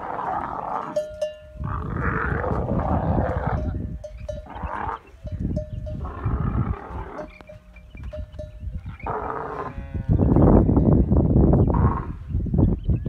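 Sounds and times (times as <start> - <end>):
camels grunting: 0.0 - 7.9, 8.8 - 10.4, 11.6 - 12.3.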